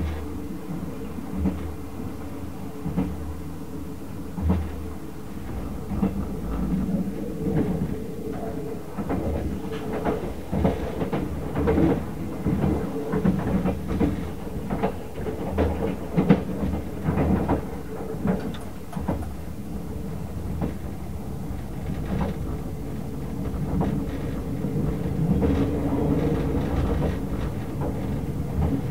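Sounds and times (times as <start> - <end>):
train ride rumble and hum: 0.0 - 28.9
wheels clicking on rails: 9.8 - 20.9.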